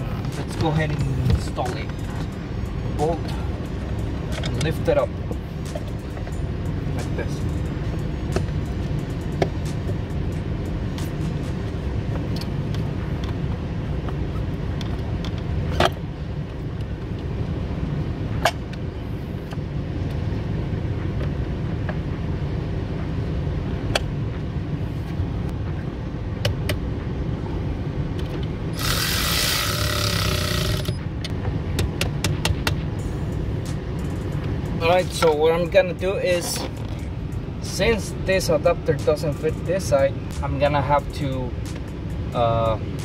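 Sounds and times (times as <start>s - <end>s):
steady low hum: 0.0s - 43.0s
cordless ratchet running: 28.8s - 31.0s.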